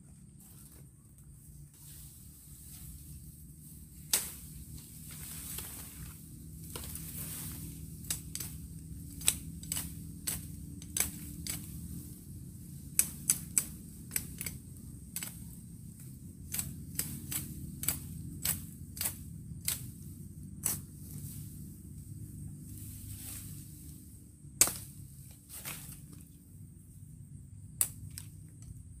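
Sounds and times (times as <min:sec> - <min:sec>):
knife chopping twigs: 0:04.0 - 0:12.0, 0:12.9 - 0:15.5, 0:16.5 - 0:19.9, 0:24.6 - 0:25.0.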